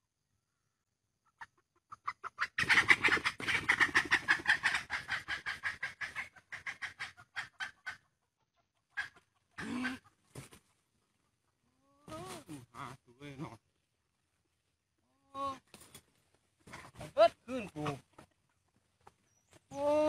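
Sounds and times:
junglefowl alarm squawks: 1.9 - 8.1.

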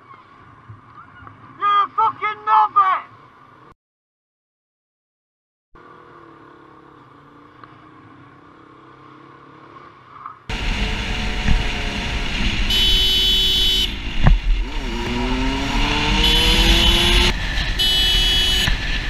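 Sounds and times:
motorcycle engine running: 10.5 - 19.0
wind noise: 10.6 - 19.0
horn sounding: 12.6 - 14.0, 15.7 - 18.8.

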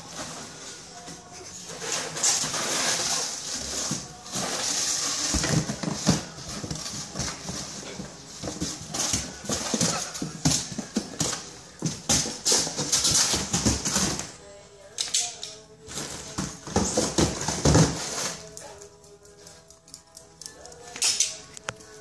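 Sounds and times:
cardboard box scraping on concrete: 1.5 - 14.2, 16.0 - 18.5.

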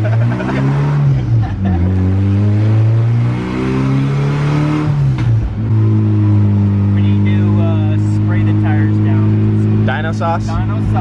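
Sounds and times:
minivan engine at full throttle: 0.0 - 11.0.

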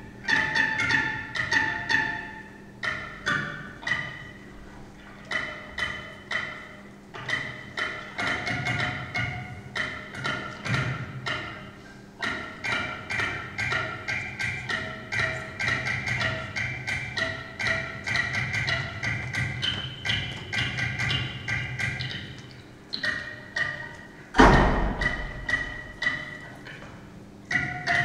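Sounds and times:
rhythm machine struck notes: 5.2 - 26.5
loud deep thump: 24.4 - 25.4.

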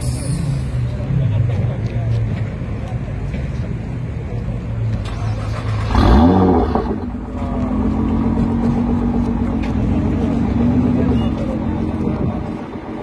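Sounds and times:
car engine revving: 5.0 - 11.1.

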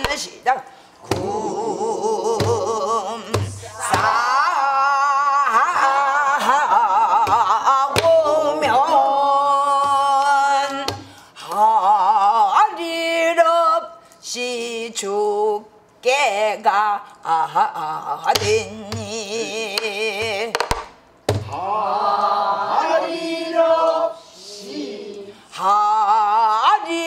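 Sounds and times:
woman singing with heavy vibrato: 1.0 - 20.6.

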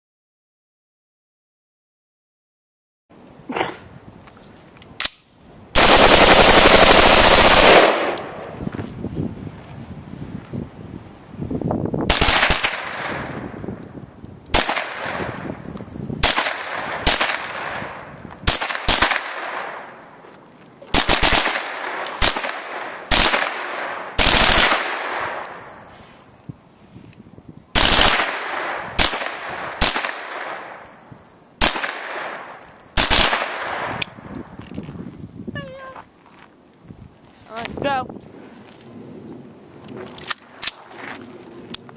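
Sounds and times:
rapid gunshots with echo: 5.8 - 8.5.

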